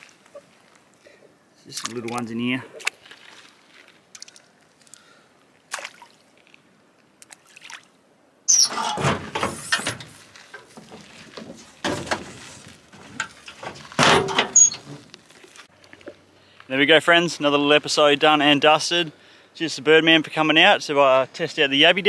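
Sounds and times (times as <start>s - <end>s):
metal canopy door clunk and rattle: 8.6s - 15.0s.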